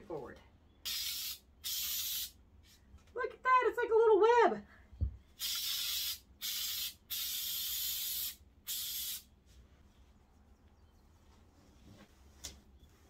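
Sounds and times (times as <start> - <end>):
aerosol spray can hissing: 0.9 - 2.4, 5.4 - 9.3.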